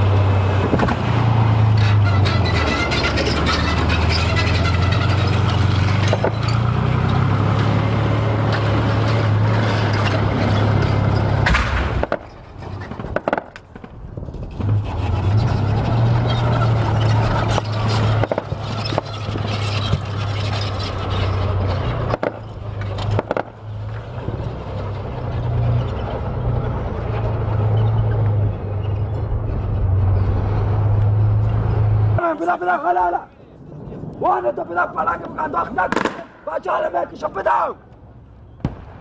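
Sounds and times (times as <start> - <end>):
vehicle engine drone: 0.0 - 39.0
sharp cracks: 11.4 - 14.0, 17.4 - 20.2, 22.1 - 23.6, 35.8 - 36.5, 38.6 - 39.0.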